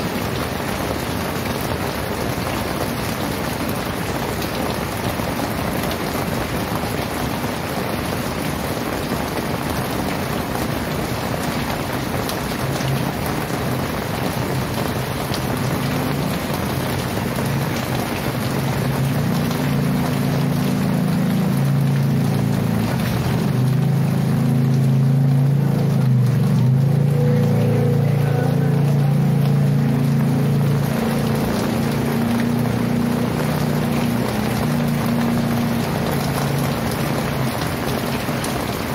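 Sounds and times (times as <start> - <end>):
heavy rain pouring: 0.0 - 38.9
low engine-like hum: 19.0 - 33.1.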